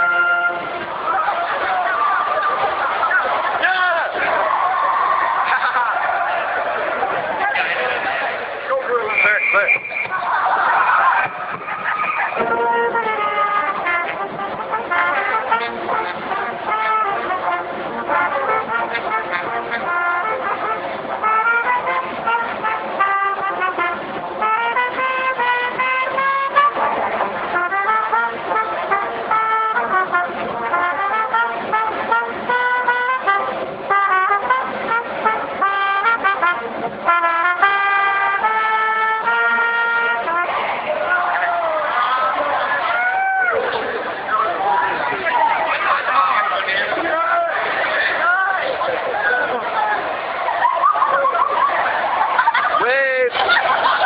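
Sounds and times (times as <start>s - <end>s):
brass band playing up-tempo tune: 0.0s - 54.0s.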